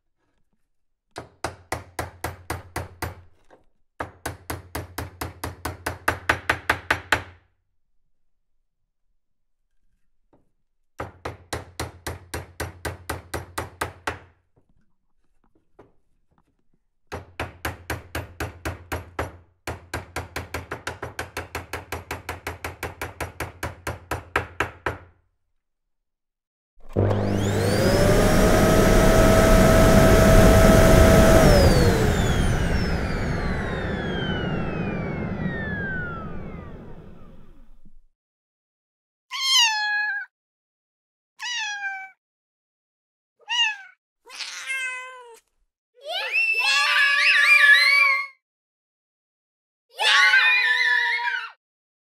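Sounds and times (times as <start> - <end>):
rapid hammering: 1.2 - 3.2, 17.1 - 25.1.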